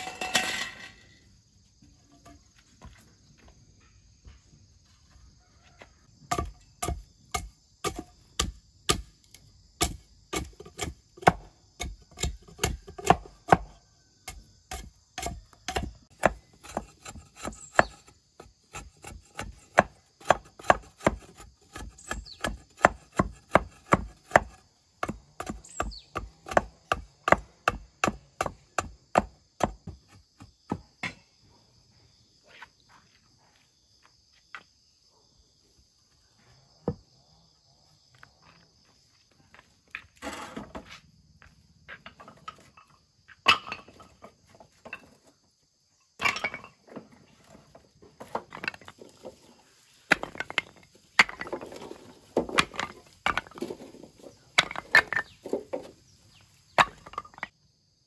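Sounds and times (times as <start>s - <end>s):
machete chopping wooden pole: 6.3s - 31.2s, 56.8s - 57.4s.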